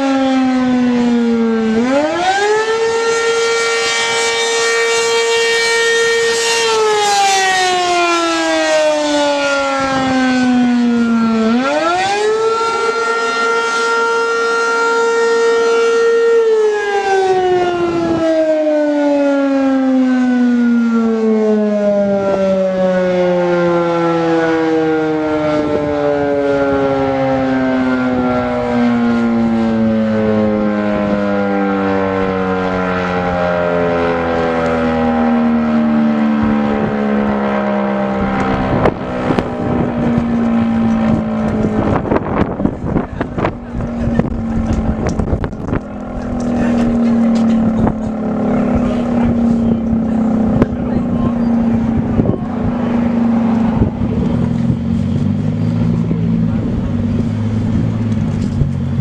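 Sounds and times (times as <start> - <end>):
warning siren wailing: 0.0 - 59.0.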